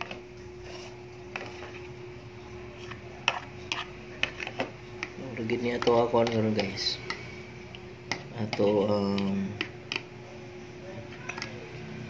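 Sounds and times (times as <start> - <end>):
fork stirring paste: 0.0 - 1.9, 2.7 - 7.4, 8.0 - 10.1
faint steady hum: 0.0 - 12.0
fork tapping plastic tub: 3.3 - 7.2, 8.1 - 10.1.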